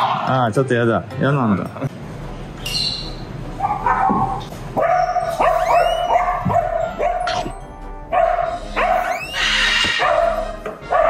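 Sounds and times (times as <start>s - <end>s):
background music: 0.0s - 11.0s
dogs yipping and whining: 2.6s - 11.0s.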